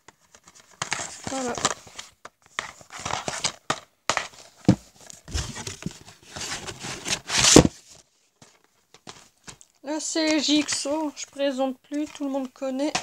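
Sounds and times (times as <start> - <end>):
plastic cases rustling and scraping: 0.0 - 13.0.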